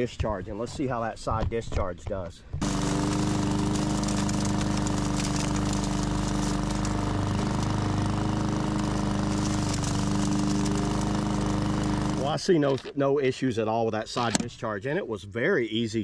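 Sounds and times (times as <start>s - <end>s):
lawn mower engine running: 2.6s - 12.9s.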